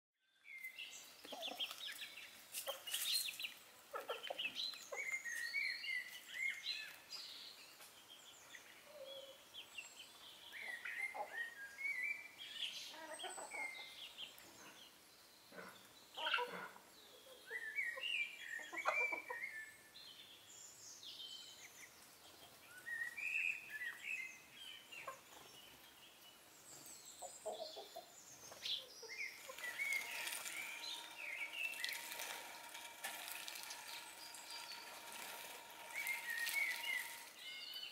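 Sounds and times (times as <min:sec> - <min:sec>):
small birds chirping: 0:00.3 - 0:37.9
chickens clucking: 0:01.2 - 0:03.3, 0:03.9 - 0:05.2, 0:18.6 - 0:19.5, 0:25.0 - 0:25.5, 0:27.2 - 0:37.4.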